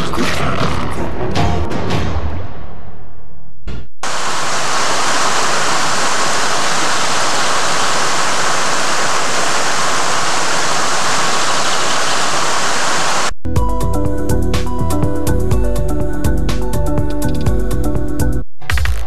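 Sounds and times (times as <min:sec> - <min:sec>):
music: 0:00.0 - 0:03.2, 0:13.4 - 0:19.0
creek water rushing: 0:04.0 - 0:13.3.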